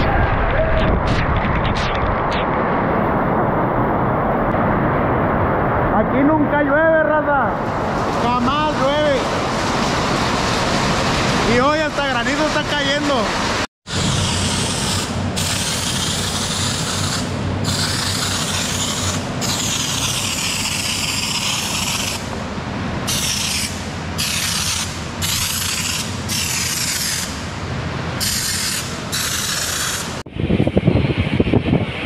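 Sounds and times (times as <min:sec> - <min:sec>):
aerosol spray can hissing: 0:14.0 - 0:22.2, 0:28.2 - 0:30.2.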